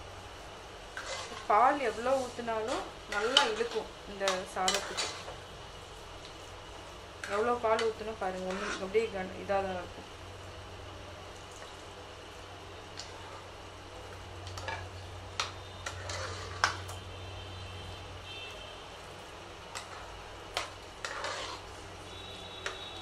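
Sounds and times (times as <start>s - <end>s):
spoon stirring wet rice: 1.0s - 1.5s, 19.7s - 21.7s.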